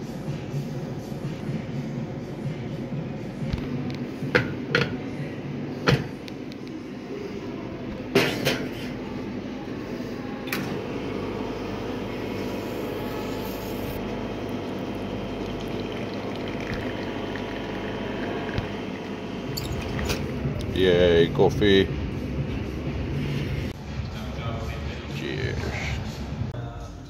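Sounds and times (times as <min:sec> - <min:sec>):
brew pump humming: 0:09.5 - 0:21.6
espresso pouring into cup: 0:12.4 - 0:20.2.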